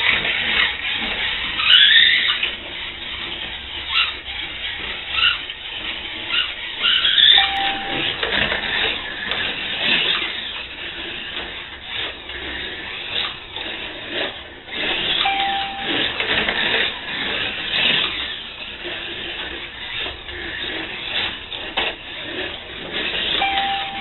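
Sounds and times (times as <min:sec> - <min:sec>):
slot car motor buzzing: 0:00.0 - 0:24.0
short timing beeps: 0:07.3 - 0:08.2, 0:15.2 - 0:16.2, 0:23.4 - 0:24.0.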